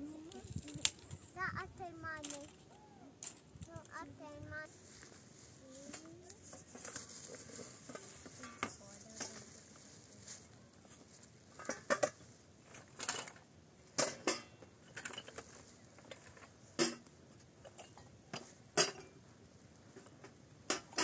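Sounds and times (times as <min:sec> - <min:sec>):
utensils and dishes clinking: 0:14.0 - 0:17.0, 0:18.8 - 0:19.1.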